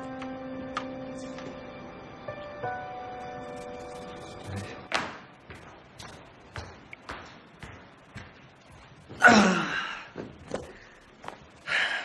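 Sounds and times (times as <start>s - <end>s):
footsteps on hard floor: 3.6s - 9.2s, 10.2s - 11.6s.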